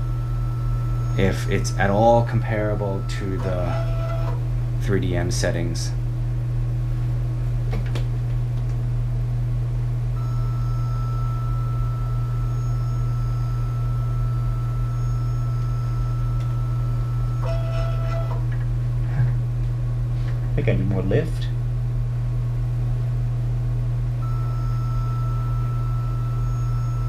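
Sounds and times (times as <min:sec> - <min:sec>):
thin high whine: 0:00.0 - 0:04.4, 0:10.2 - 0:18.4, 0:24.2 - 0:27.0
printer low hum: 0:00.0 - 0:09.0, 0:10.0 - 0:27.0.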